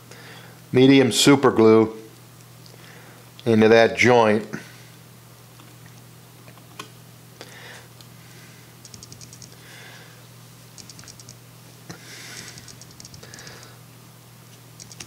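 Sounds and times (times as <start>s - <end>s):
steady low hum: 0.0s - 15.0s
rapid ticking: 8.8s - 9.6s, 10.8s - 11.4s, 12.5s - 13.4s, 14.8s - 15.0s.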